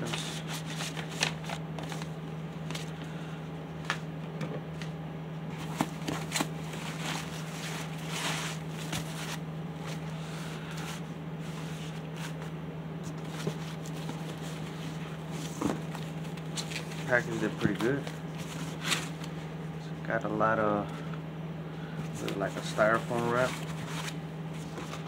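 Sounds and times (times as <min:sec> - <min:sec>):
foam wrap and paper rustling: 0:00.0 - 0:03.0, 0:05.6 - 0:12.5, 0:13.1 - 0:19.3, 0:22.2 - 0:25.0
steady low hum: 0:00.0 - 0:25.0.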